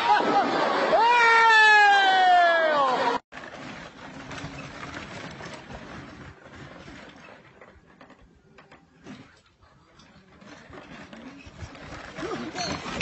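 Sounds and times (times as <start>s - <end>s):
riding lawn mower engine: 3.3s - 8.4s.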